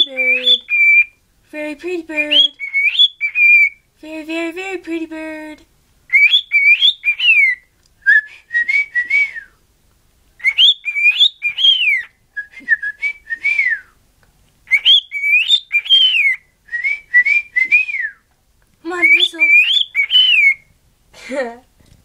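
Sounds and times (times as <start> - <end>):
cockatiel whistling a tune: 0.0 - 1.1, 2.3 - 3.8, 6.1 - 9.5, 10.4 - 13.9, 14.7 - 18.2, 19.0 - 20.7.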